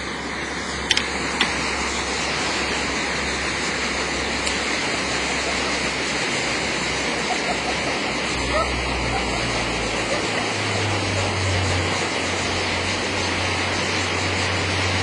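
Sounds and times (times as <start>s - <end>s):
thermite burning with a hiss: 0.0s - 15.0s.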